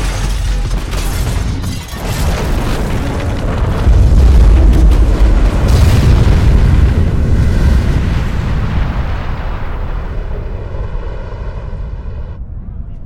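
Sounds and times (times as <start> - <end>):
building explosion rumble: 2.0 - 12.9.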